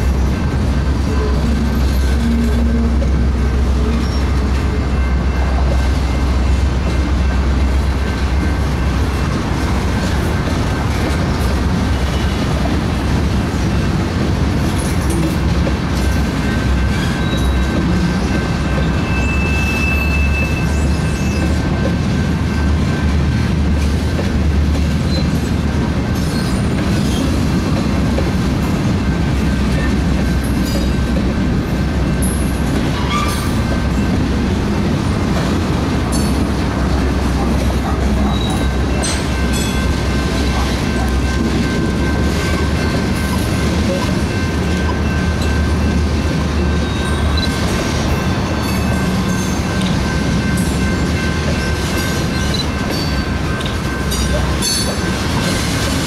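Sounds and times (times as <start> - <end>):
clickety-clack over rail joints: 0.0 - 56.0
train wheels rumbling on rails: 0.0 - 56.0
high wheel squeal: 16.8 - 17.8, 18.8 - 21.6, 32.9 - 33.6.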